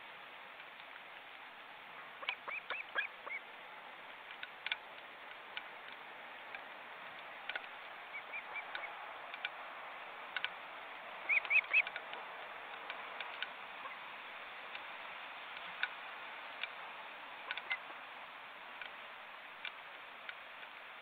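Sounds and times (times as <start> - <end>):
faint ticks: 0.5 - 9.7, 10.3 - 21.0
ospreys whistled chirps: 11.3 - 11.8.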